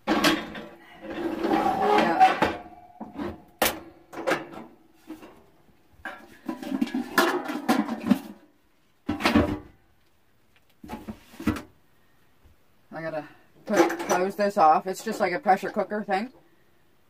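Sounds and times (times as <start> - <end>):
pots and lids clattering: 0.0 - 5.4, 6.0 - 8.5, 9.1 - 9.7, 13.7 - 14.4.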